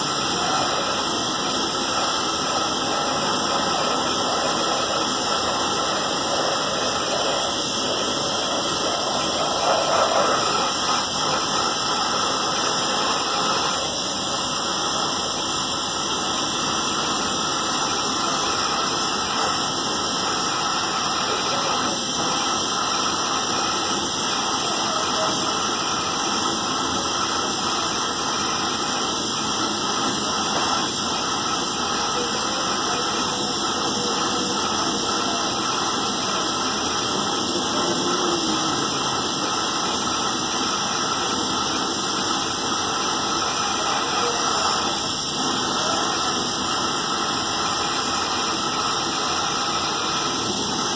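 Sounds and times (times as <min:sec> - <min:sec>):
welding torch flame hissing: 0:00.0 - 0:50.9.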